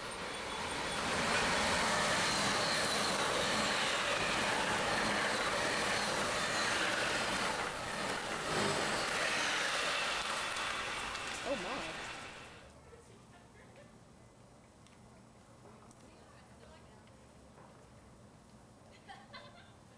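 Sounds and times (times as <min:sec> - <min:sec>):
passenger train passing: 0:00.0 - 0:12.7.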